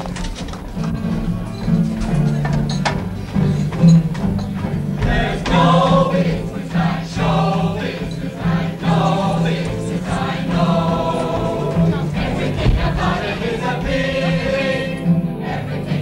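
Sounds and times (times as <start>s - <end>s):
musical accompaniment: 0.0s - 16.0s
mixed chorus singing: 4.6s - 16.0s.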